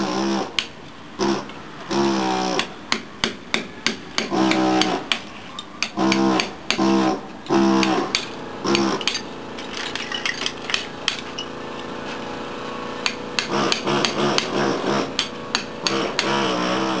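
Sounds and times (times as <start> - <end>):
pneumatic air hammer running: 0.0 - 17.0
tiles cracking and breaking away: 7.8 - 11.4.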